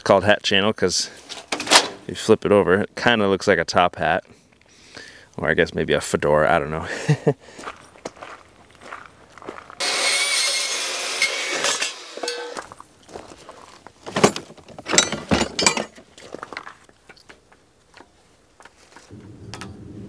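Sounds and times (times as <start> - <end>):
power tool cutting steel: 9.8 - 12.6
hand tools rattling in toolbox: 14.0 - 16.7.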